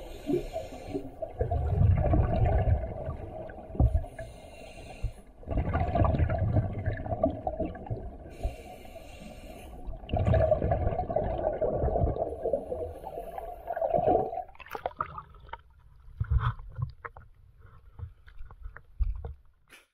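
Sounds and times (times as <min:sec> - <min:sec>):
hissing inhale through regulator: 0:00.0 - 0:01.3, 0:03.8 - 0:05.4, 0:08.2 - 0:10.1, 0:12.4 - 0:13.9
small clicks and water noises: 0:00.1 - 0:19.9
diver exhaling bubbles: 0:01.2 - 0:04.2, 0:05.4 - 0:08.3, 0:10.0 - 0:15.4.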